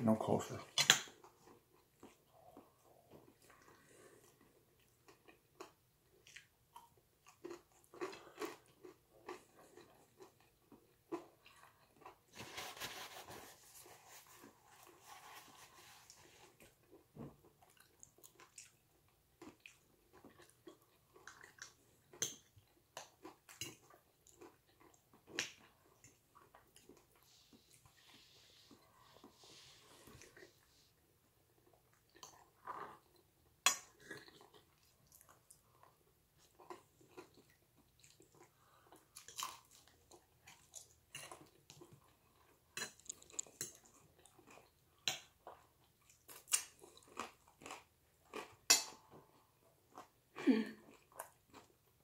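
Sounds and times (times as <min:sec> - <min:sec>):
person chewing: 0:00.7 - 0:12.3, 0:14.1 - 0:50.2
rustling: 0:12.3 - 0:16.5.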